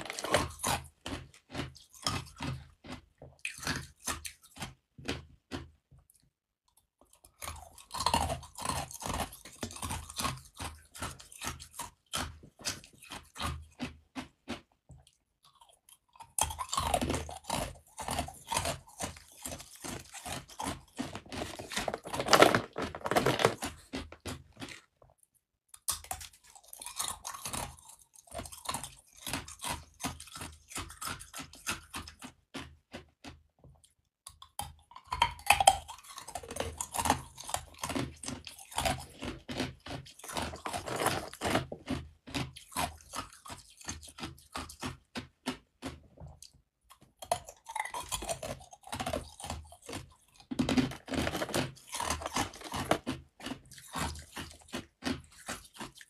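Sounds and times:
ice cubes crunched by teeth: 0:00.0 - 0:05.6, 0:15.5 - 0:24.9, 0:25.8 - 0:32.7, 0:34.4 - 0:46.0, 0:47.2 - 0:56.0.

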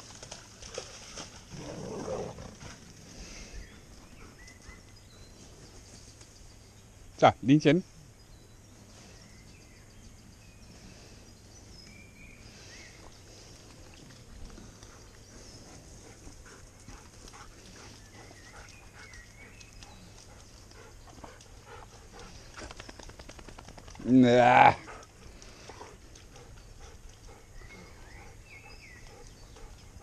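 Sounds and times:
bird chirps: 0:26.4 - 0:30.0.

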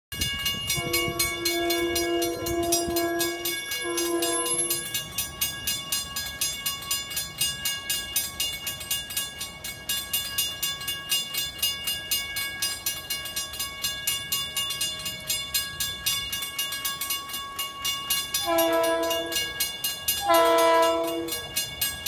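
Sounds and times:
railroad crossing bell dinging: 0:00.1 - 0:22.0
distant train horn: 0:00.7 - 0:04.9, 0:18.3 - 0:21.6.

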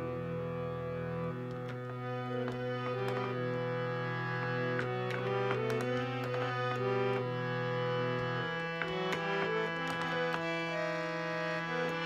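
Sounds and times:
harmonium playing: 0:00.0 - 0:12.0.

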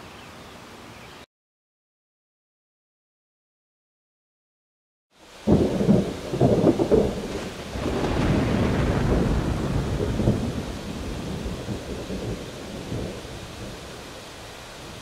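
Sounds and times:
steady rain: 0:05.1 - 0:15.0
thunder cracking and rolling: 0:05.4 - 0:14.0.

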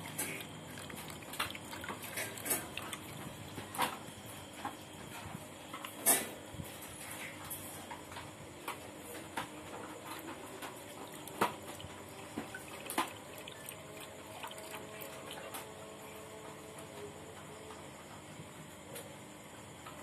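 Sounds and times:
dog lapping from a steel pot: 0:00.0 - 0:03.4, 0:11.0 - 0:15.6.

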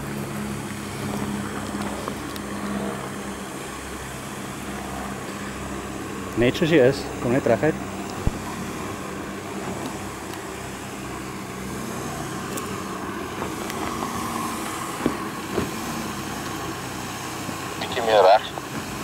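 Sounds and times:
suv engine running at low revs: 0:00.0 - 0:19.0.

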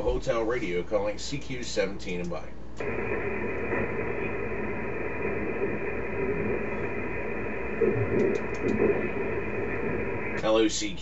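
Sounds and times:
faint steady radio tones: 0:00.0 - 0:11.0
radio band noise hiss: 0:00.0 - 0:11.0.

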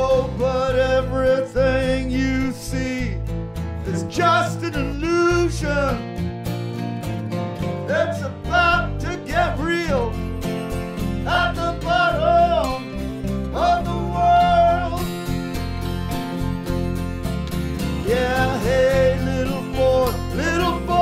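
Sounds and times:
acoustic guitar strumming: 0:00.0 - 0:21.0
bass guitar: 0:00.0 - 0:21.0
sliding melody line: 0:07.9 - 0:16.6, 0:17.7 - 0:21.0.

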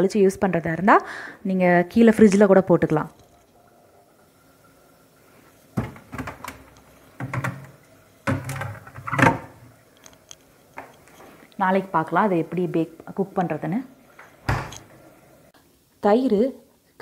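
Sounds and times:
freezer door clunks: 0:05.8 - 0:06.6, 0:07.2 - 0:09.6, 0:14.4 - 0:14.8
plastic container set on shelf: 0:05.8 - 0:09.7.

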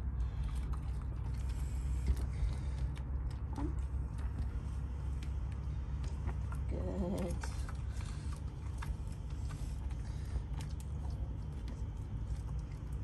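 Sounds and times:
steady low rumble: 0:00.0 - 0:13.0.

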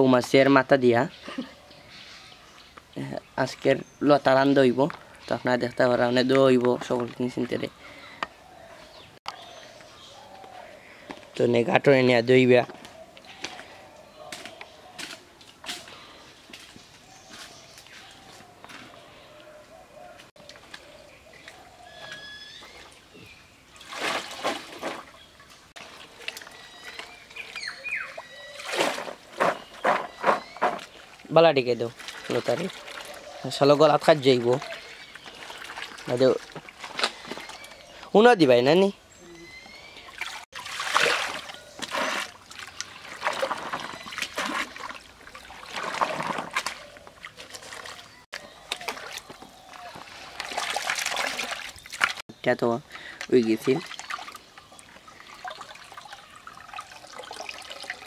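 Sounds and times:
water sloshing and splashing: 0:21.4 - 0:37.9, 0:40.0 - 0:52.2, 0:53.2 - 0:58.0.

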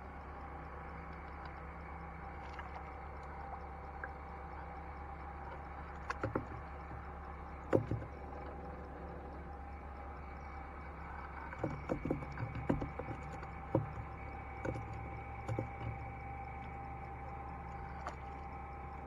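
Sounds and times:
steady low hum: 0:00.0 - 0:19.0
knocks on wooden boat: 0:06.1 - 0:07.0, 0:07.7 - 0:08.2, 0:11.6 - 0:16.1.

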